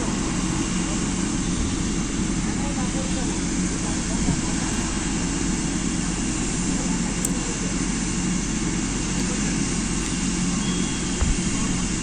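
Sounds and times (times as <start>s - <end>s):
faint high whine: 0.0s - 12.0s
helicopter turbine and rotor rumble: 0.0s - 12.0s.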